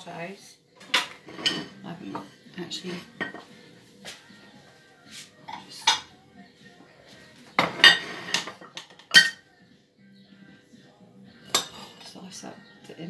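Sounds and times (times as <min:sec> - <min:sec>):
crockery and knife clinking: 0:00.8 - 0:03.6, 0:05.4 - 0:06.2, 0:07.6 - 0:09.4, 0:11.5 - 0:12.3.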